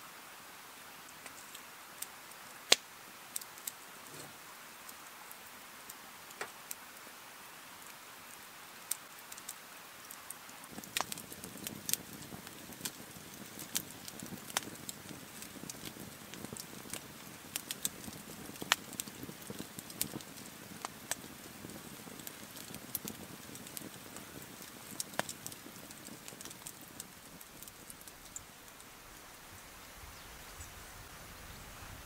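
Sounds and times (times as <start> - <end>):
campfire crackling and popping: 1.1 - 6.8, 8.9 - 29.4
rush of flames: 10.7 - 28.8.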